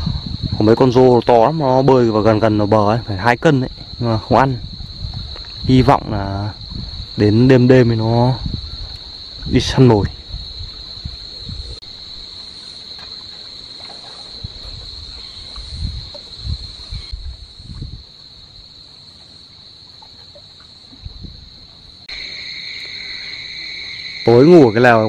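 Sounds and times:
wind on microphone: 0.0s - 12.3s, 14.2s - 18.8s, 20.9s - 22.1s
lower-pitched insect tone: 0.0s - 25.0s
high-pitched insect drone: 19.6s - 25.0s.

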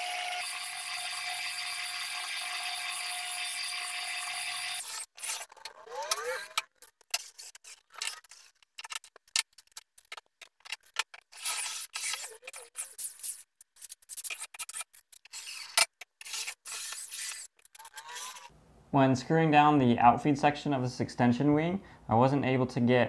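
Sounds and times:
cordless drill whine: 0.0s - 5.1s
drill press whirring: 0.0s - 5.4s
tools clicking and knocking: 5.3s - 11.4s.

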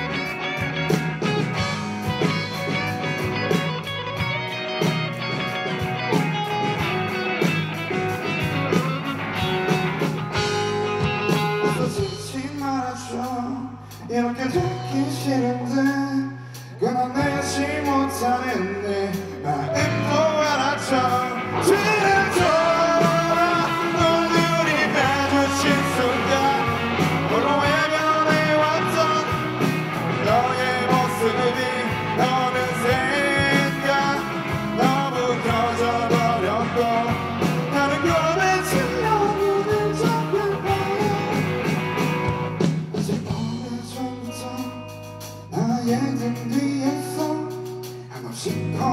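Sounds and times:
bass guitar: 0.0s - 48.9s
drum kit: 0.0s - 48.9s
electric guitars: 0.0s - 48.9s
sustained lead melody: 19.7s - 42.6s.

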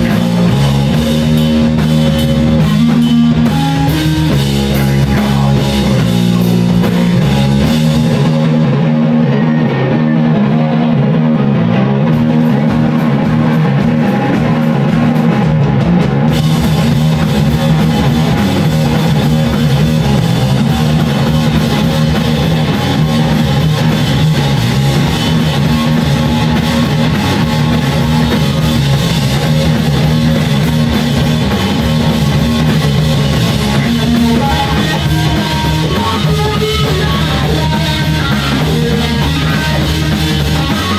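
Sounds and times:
drum kit: 0.0s - 40.9s
electric guitar and bass riff: 0.0s - 40.9s.

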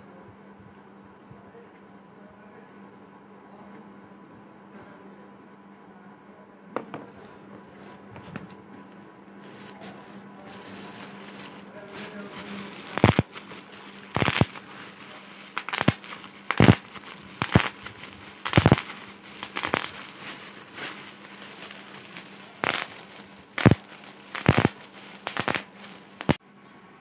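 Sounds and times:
plastic sheet crinkling: 9.4s - 26.4s
bubble wrap popping: 9.5s - 26.4s.

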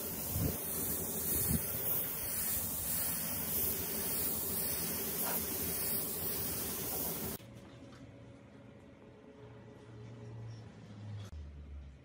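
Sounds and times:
spray gun hissing: 0.0s - 7.4s.

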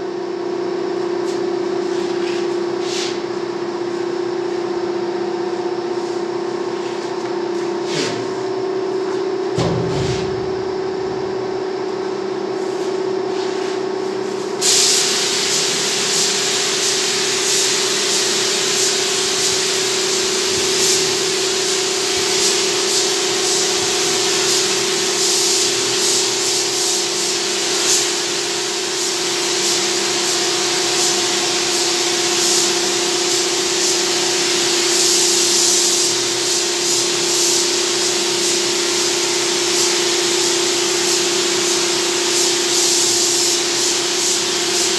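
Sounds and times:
spray gun hissing: 14.3s - 44.9s.

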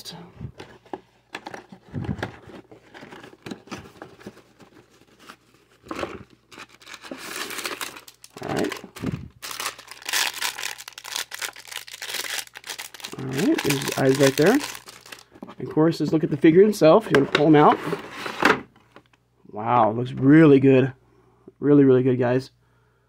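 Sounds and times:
cardboard packaging rustling: 0.5s - 15.5s
plastic bag crinkling: 5.8s - 15.4s.

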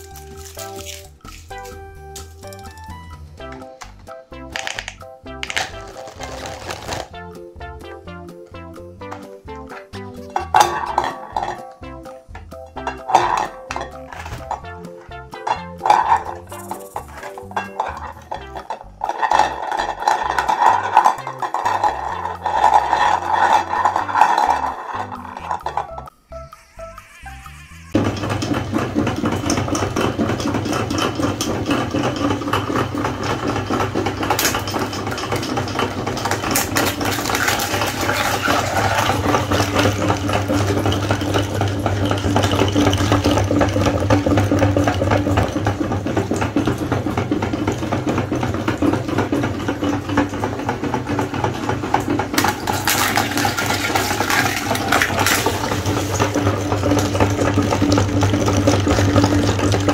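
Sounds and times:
eggshells crackling: 0.0s - 7.2s, 9.1s - 29.0s, 32.1s - 41.3s, 52.4s - 59.9s
meat grinder humming: 5.4s - 7.1s, 10.0s - 59.9s.

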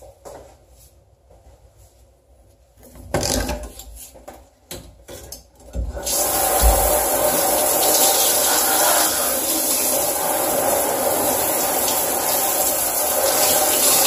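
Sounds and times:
shower head spraying water: 6.0s - 14.0s.

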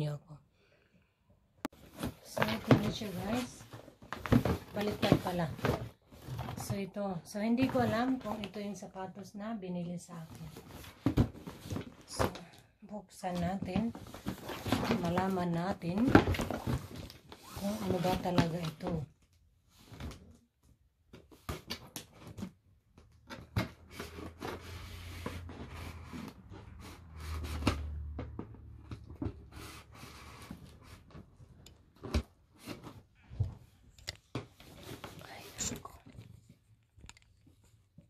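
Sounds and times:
cardboard scraping and rubbing: 16.4s - 18.6s.

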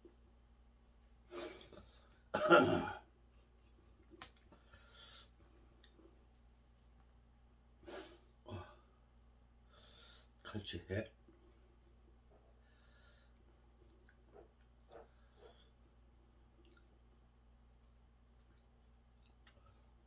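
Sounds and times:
man coughing: 2.4s - 3.0s
man clearing throat: 2.4s - 3.1s.

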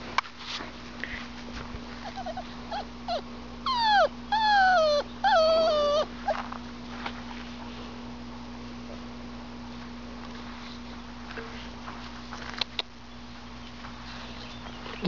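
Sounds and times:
puppy whining: 2.0s - 6.6s.

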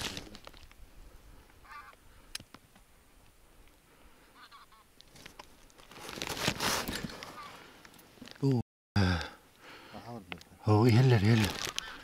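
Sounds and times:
geese honking faintly: 1.6s - 2.0s, 4.2s - 4.9s, 7.3s - 7.6s.

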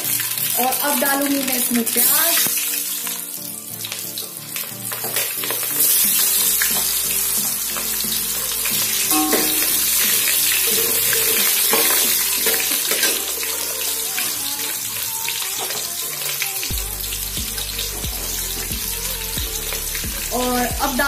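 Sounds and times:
onions sizzling in hot oil: 0.0s - 21.0s.

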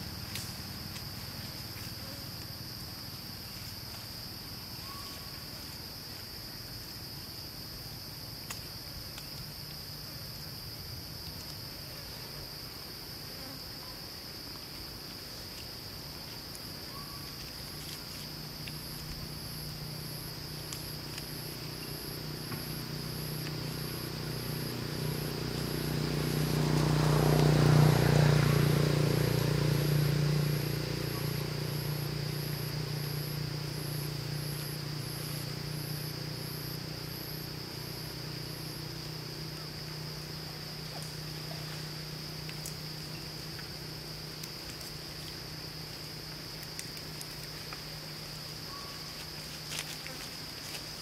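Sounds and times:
insects droning: 0.0s - 51.0s
low engine hum: 16.5s - 51.0s.

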